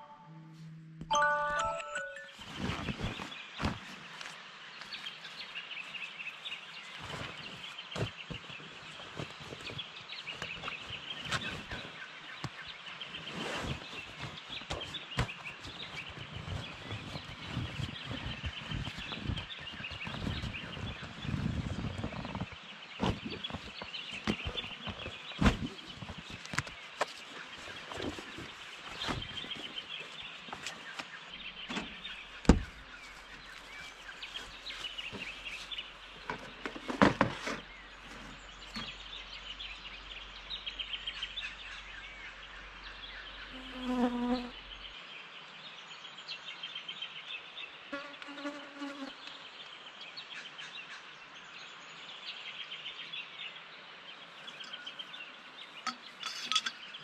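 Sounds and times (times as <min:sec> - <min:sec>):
camping gear knocks and rustles: 0:02.4 - 0:06.0, 0:06.7 - 0:39.2, 0:55.8 - 0:57.0.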